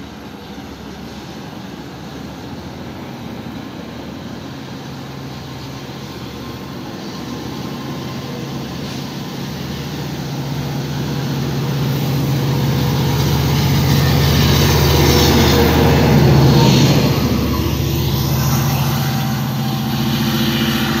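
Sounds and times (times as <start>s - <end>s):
diesel locomotive engine drone: 0.0s - 21.0s
coaches rumbling on track: 6.5s - 21.0s.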